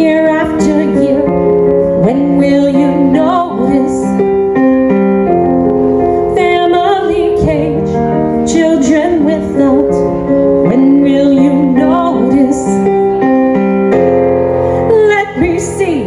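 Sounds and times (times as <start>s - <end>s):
woman singing with vibrato: 0.0s - 4.2s, 6.3s - 12.9s, 14.8s - 16.0s
piano chords: 0.0s - 16.0s.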